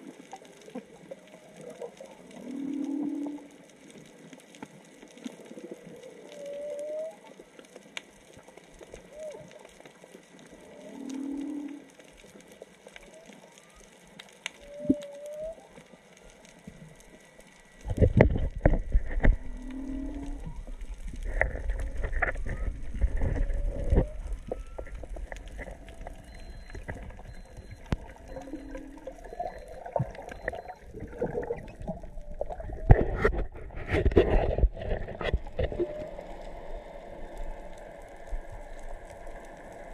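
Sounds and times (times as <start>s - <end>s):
humpback whale song: 0.0s - 3.7s, 5.6s - 7.5s, 8.9s - 9.8s, 10.4s - 12.2s, 12.8s - 17.8s, 18.9s - 39.9s.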